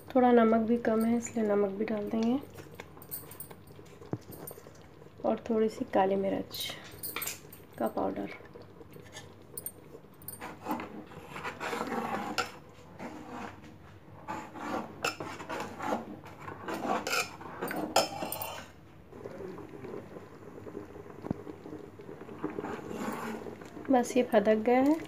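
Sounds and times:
spoon stirring and scraping pot: 10.2 - 18.8, 22.2 - 25.0.

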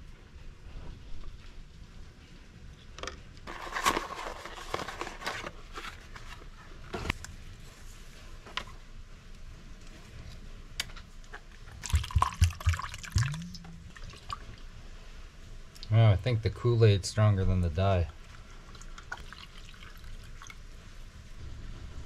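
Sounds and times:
liquid dripping and splashing: 11.6 - 14.7, 18.2 - 20.6
plastic cups clicking and tapping: 11.7 - 13.4.

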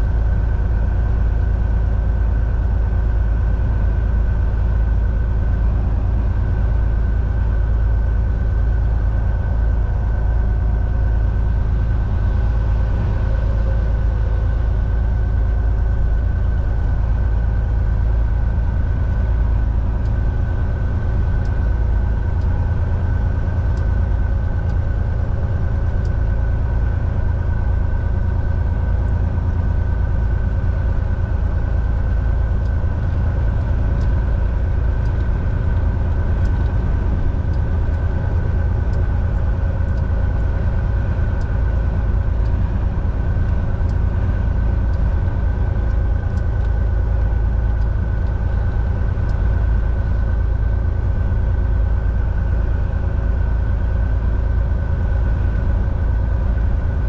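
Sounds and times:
truck diesel engine rumbling: 0.0 - 57.0.

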